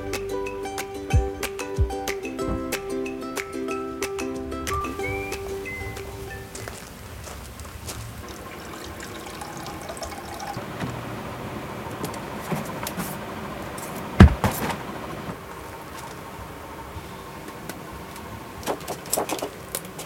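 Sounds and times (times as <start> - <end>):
loud thump: 2.4 - 2.8, 14.2 - 14.8.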